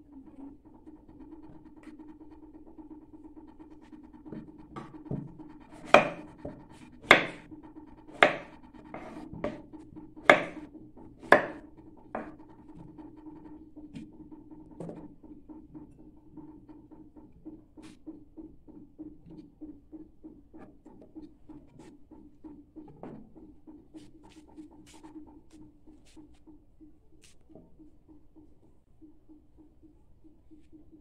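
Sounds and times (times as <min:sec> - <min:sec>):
steady low hum: 0:00.0 - 0:31.0
knife cutting on wooden board: 0:04.3 - 0:07.5, 0:08.1 - 0:09.6, 0:10.2 - 0:10.6, 0:11.2 - 0:12.4.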